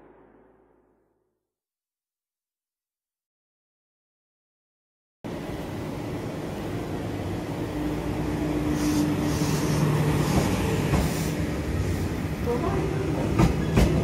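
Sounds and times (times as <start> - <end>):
electric train humming: 5.3 - 14.0
train hissing: 6.9 - 12.5.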